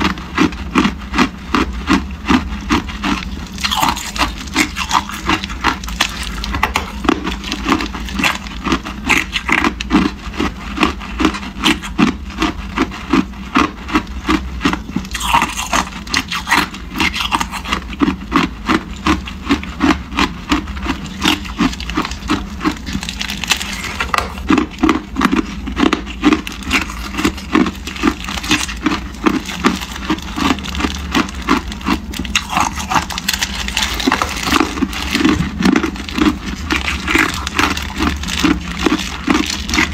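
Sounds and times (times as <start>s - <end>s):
ice cubes crunching: 0.0s - 39.9s
plastic bag crinkling: 2.5s - 10.2s, 20.8s - 39.9s.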